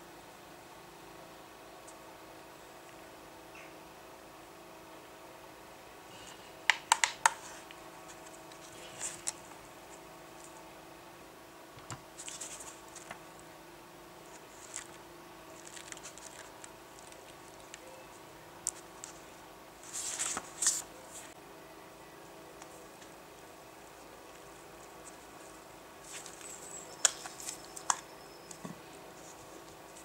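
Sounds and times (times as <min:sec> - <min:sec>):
paper pages flipping: 0:07.2 - 0:09.6, 0:12.2 - 0:13.2, 0:14.2 - 0:17.9, 0:19.8 - 0:21.4, 0:23.8 - 0:28.6.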